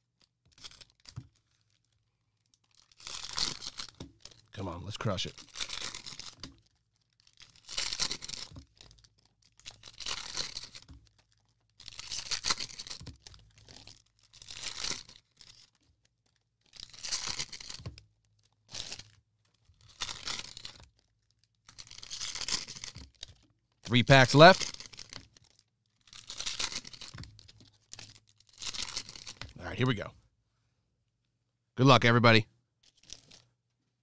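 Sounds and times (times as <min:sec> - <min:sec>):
plastic wrappers crinkling rip: 0:00.2 - 0:29.6, 0:32.8 - 0:33.5.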